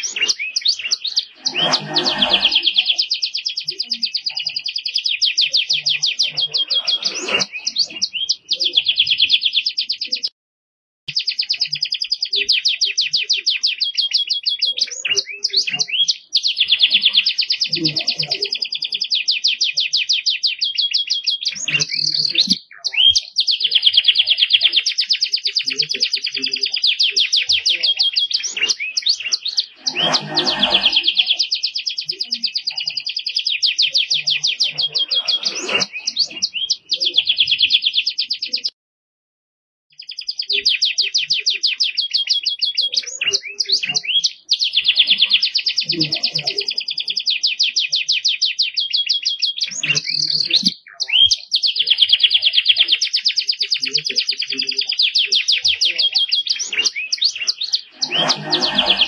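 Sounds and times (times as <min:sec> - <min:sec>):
canary singing rapid trills: 0:00.0 - 0:10.3, 0:11.1 - 0:38.7, 0:39.9 - 0:59.0.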